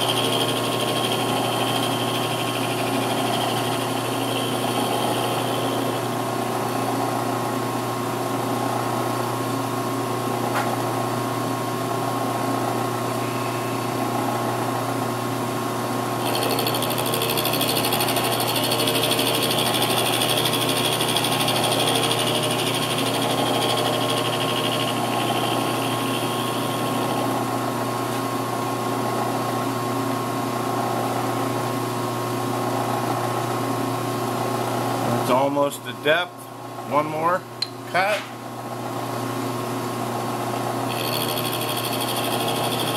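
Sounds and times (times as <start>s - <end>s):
milling machine motor humming: 0.0s - 7.2s, 16.2s - 28.0s, 40.6s - 42.9s.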